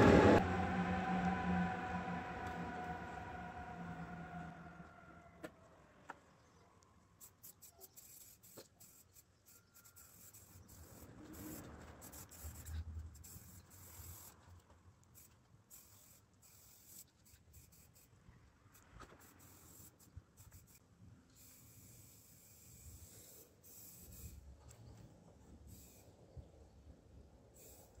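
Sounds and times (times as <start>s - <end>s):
low rumble: 0.0s - 5.4s
aerosol spray can hissing: 7.2s - 14.4s, 15.2s - 18.1s, 19.2s - 20.8s, 21.4s - 24.4s, 25.7s - 26.0s, 27.6s - 28.0s.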